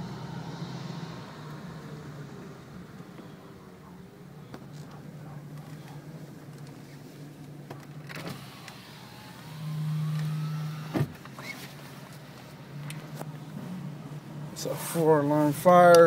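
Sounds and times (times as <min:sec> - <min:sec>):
small electric motor whining: 0:08.2 - 0:11.0.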